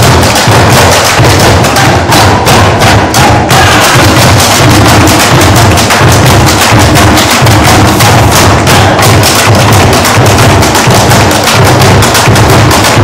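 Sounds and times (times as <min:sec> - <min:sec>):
plastic bin drums beaten with sticks: 0:00.0 - 0:13.0
pulsing low drum beat: 0:00.0 - 0:13.0.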